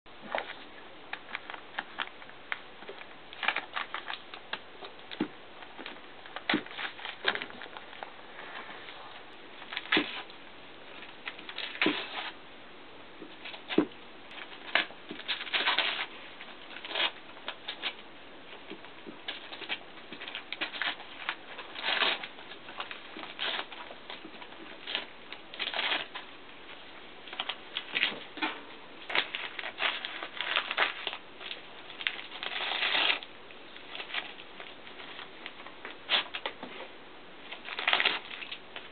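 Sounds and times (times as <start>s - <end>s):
dog ripping wrapping paper: 2.9s - 4.5s, 5.8s - 8.0s, 9.6s - 10.3s, 11.2s - 12.4s, 13.4s - 18.0s, 19.0s - 26.3s, 29.1s - 36.5s, 37.5s - 38.9s.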